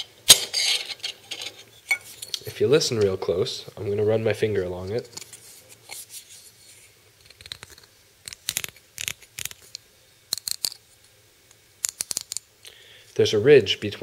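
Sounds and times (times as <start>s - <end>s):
fingernail clicking over ridges: 11.8s - 12.5s.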